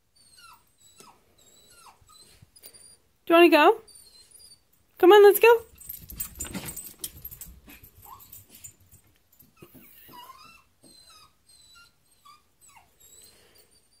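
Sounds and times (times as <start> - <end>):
dog whining: 0.0 - 3.1, 3.8 - 4.8, 9.6 - 14.0.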